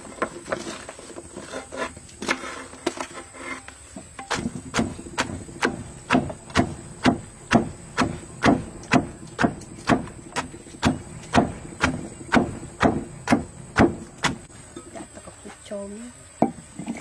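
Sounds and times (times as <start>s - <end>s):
wooden pestle pounding in clay mortar: 4.2s - 14.5s.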